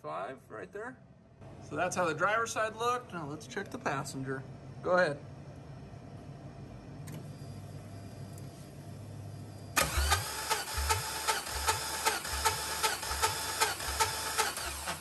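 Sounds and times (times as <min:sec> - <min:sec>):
low steady hum: 0:00.0 - 0:10.0
starter motor cranking engine: 0:09.8 - 0:15.0.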